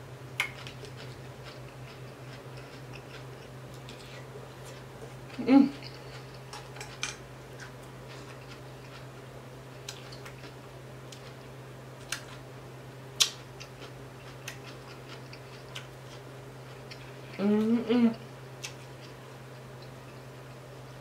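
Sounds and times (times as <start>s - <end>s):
steady low hum: 0.0s - 21.0s
person chewing with mouth clicks: 0.4s - 9.1s, 9.8s - 11.4s, 13.2s - 17.7s.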